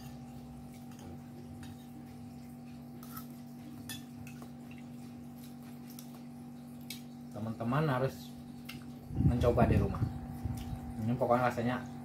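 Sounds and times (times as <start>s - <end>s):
steady hum: 0.0s - 12.0s
cutlery scraping ceramic plate: 3.0s - 4.4s.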